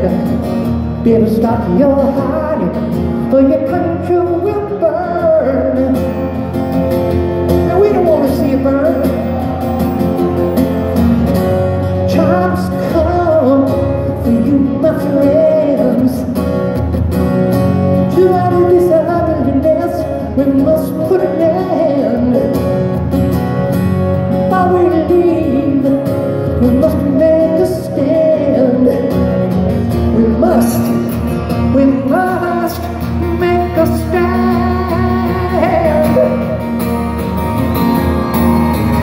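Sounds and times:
person singing: 0.0s - 6.5s, 7.5s - 10.8s, 11.7s - 16.5s, 17.9s - 22.8s, 24.4s - 37.3s
live rock band music: 0.0s - 39.0s
strummed acoustic guitar: 0.0s - 39.0s.

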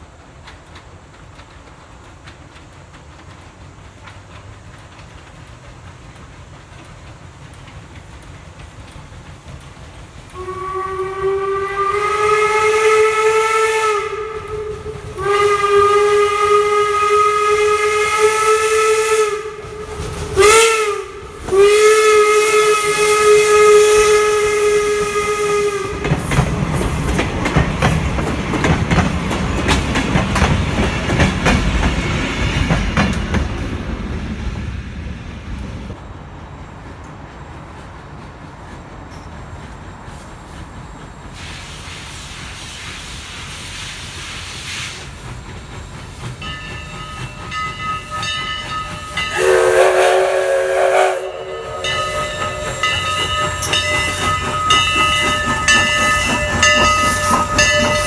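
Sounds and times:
train wheels clattering over rail joints: 0.0s - 10.7s, 25.6s - 36.0s, 51.8s - 58.0s
steam whistle: 10.3s - 26.1s, 48.0s - 58.0s.

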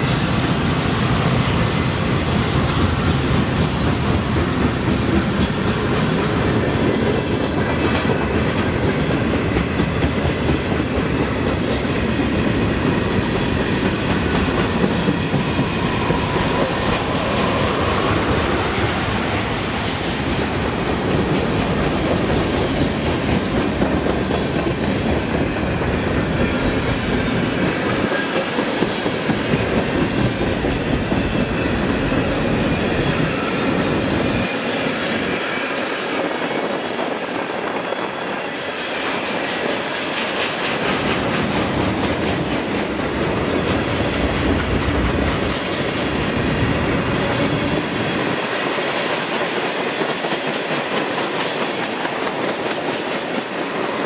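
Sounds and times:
train wheels clattering over rail joints: 39.0s - 54.0s.

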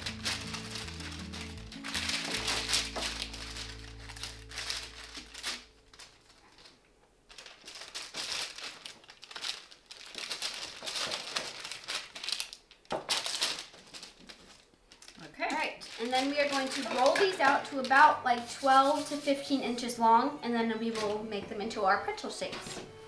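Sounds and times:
background music: 0.0s - 6.2s, 15.9s - 23.0s
parchment paper crinkling: 0.0s - 22.6s.

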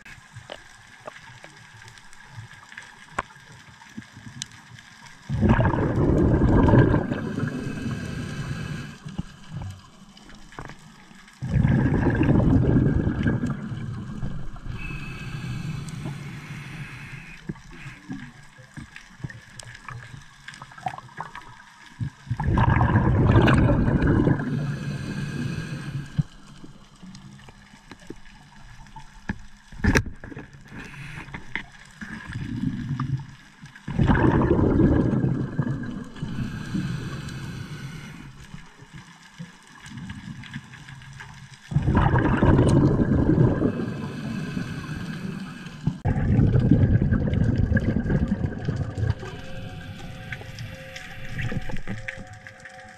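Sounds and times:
underwater breathing bubbles: 5.2s - 10.8s, 11.4s - 27.1s, 29.8s - 38.9s, 41.7s - 52.6s
quiet hiss: 6.8s - 11.4s, 12.8s - 22.4s, 23.4s - 33.9s, 35.9s - 41.6s, 49.0s - 52.3s.

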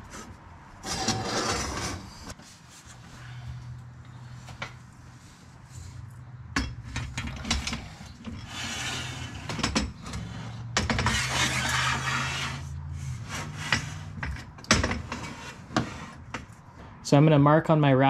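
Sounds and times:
panel frame scraping on rails: 0.1s - 3.6s, 6.8s - 16.6s.

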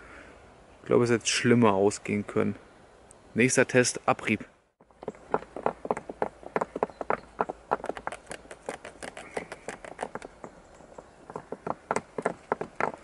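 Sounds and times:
cord scraping over rock: 5.0s - 13.0s.

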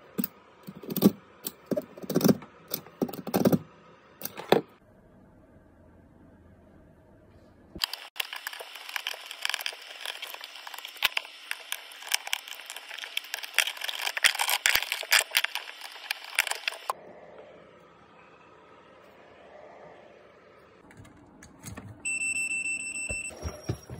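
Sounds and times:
plastic and metal clicking and scraping: 0.2s - 3.6s.

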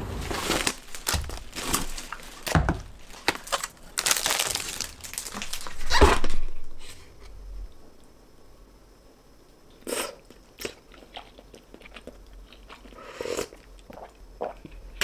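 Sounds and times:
bags and packaging rustling: 0.0s - 6.9s
items knocking: 0.1s - 3.5s.

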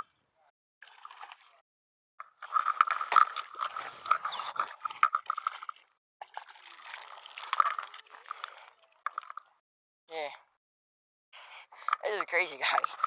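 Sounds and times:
water splashing: 0.8s - 1.6s, 2.2s - 9.6s.

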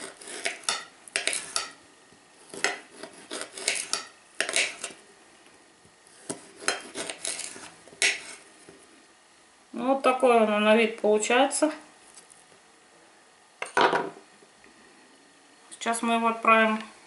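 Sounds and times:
knife scraping pork fat: 0.0s - 1.8s, 2.4s - 5.0s, 6.1s - 8.5s.

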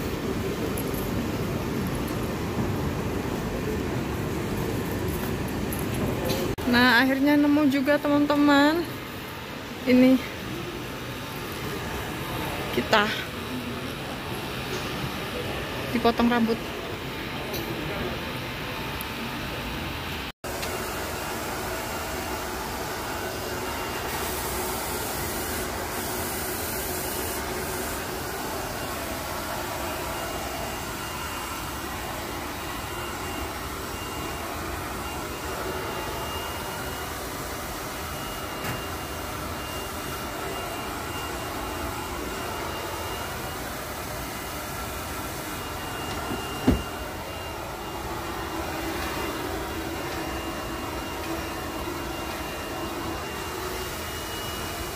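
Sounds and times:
hair dryer blowing: 20.5s - 54.9s.

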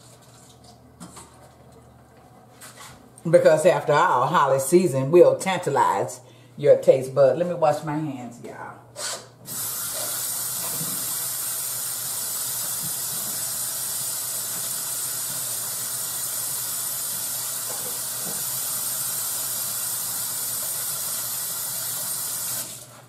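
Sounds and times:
tap running: 9.1s - 16.3s, 17.2s - 19.0s.

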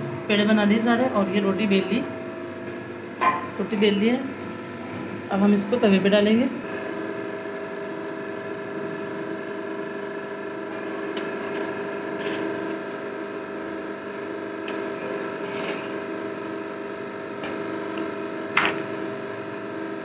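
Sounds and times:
steady mechanical hum: 0.0s - 20.0s
spatula scraping pan: 14.9s - 16.0s.

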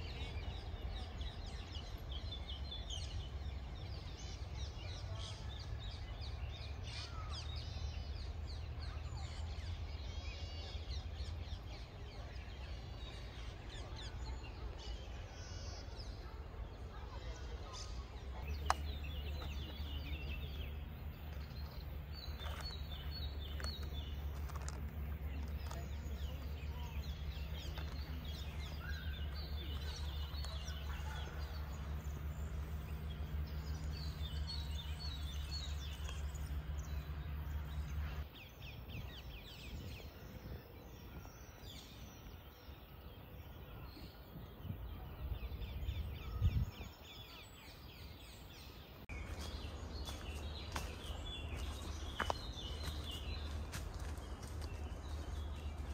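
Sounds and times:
small birds chirping and trilling: 0.0s - 55.9s
steady low rumble: 16.2s - 41.4s.

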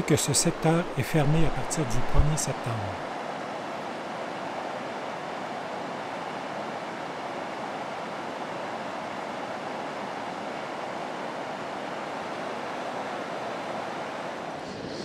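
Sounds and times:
water rushing over rocks: 0.0s - 3.1s.

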